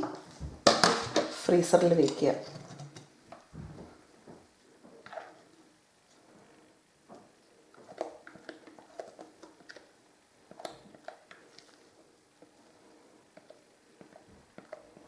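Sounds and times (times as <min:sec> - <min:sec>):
soft squishes: 0:04.5 - 0:15.0.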